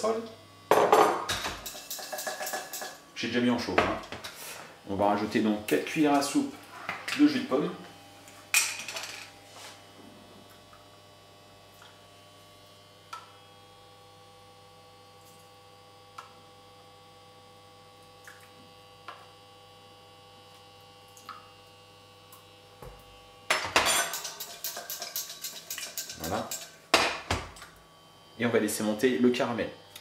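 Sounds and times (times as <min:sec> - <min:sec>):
steady electrical hum: 0:00.0 - 0:30.0
spoon clinking on saucepan: 0:23.8 - 0:26.7.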